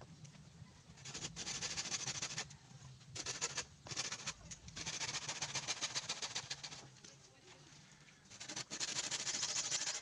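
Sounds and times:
knife scraping bamboo: 1.0 - 2.5, 3.2 - 7.0, 8.3 - 10.0.

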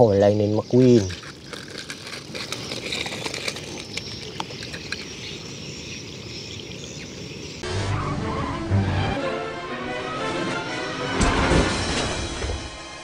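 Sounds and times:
gravel clicking and crunching: 0.2 - 7.6.

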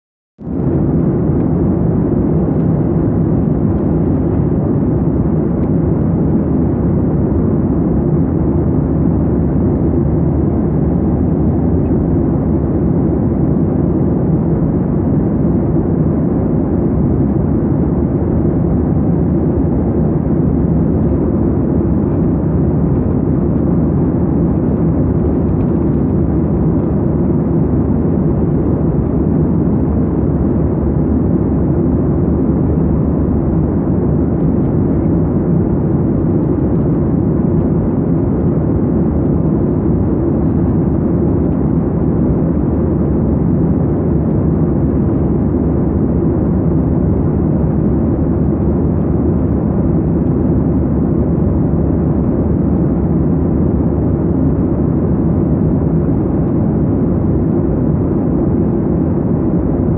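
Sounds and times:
jet cabin airflow and engine noise: 0.4 - 59.9.

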